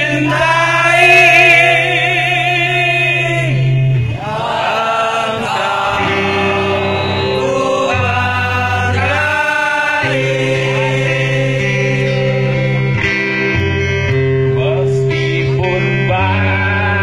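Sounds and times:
acoustic guitar: 0.0s - 17.0s
held bass notes: 0.0s - 17.0s
person singing: 4.2s - 13.0s.

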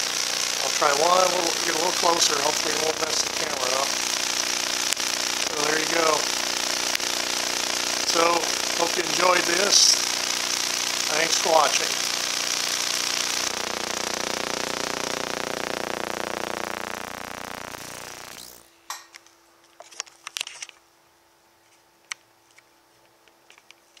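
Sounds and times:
electrical discharge hiss: 0.0s - 18.7s
buzzing hum: 0.0s - 18.8s.

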